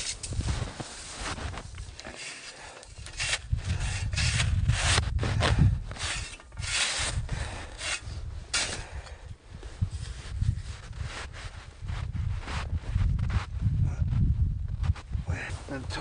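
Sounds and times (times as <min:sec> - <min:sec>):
wind rumble on microphone: 0:00.0 - 0:02.0, 0:02.9 - 0:16.0
shovel scraping packed snow: 0:00.0 - 0:08.9.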